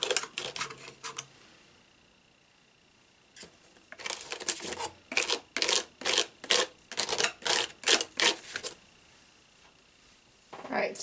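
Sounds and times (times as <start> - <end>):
palette knife scraping stencil: 0.0 - 1.2, 4.0 - 8.8.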